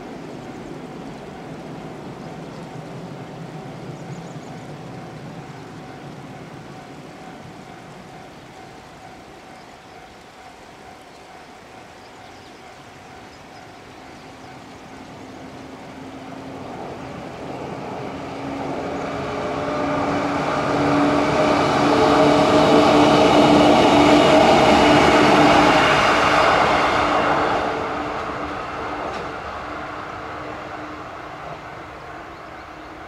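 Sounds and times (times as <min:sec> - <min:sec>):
electric train passing: 0:00.0 - 0:33.0.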